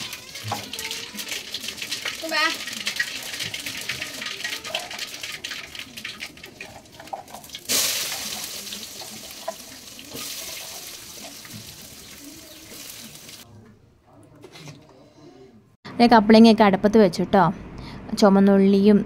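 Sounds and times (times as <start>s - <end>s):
food sizzling in hot pan: 0.0s - 13.4s
wood fire crackling: 0.0s - 13.4s.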